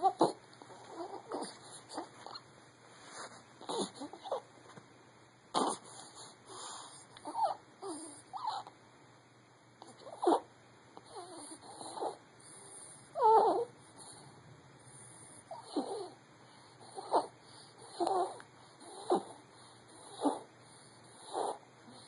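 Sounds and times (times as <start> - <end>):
baby grunting and snuffling: 0.0 - 2.4, 3.6 - 4.5, 5.5 - 6.4, 9.8 - 12.2, 15.4 - 16.2, 16.8 - 20.5, 21.1 - 22.0.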